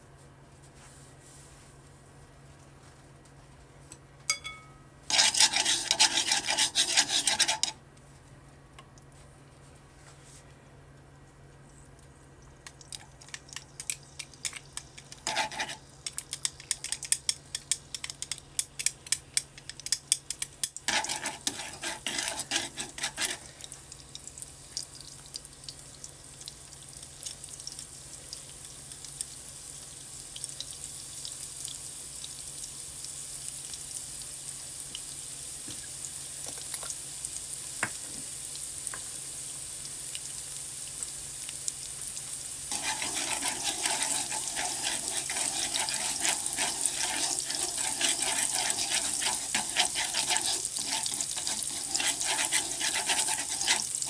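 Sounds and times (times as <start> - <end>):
onion sizzling in hot oil: 5.1 - 7.8, 14.0 - 16.7, 20.2 - 54.0
chopsticks clicking and scraping: 42.7 - 54.0.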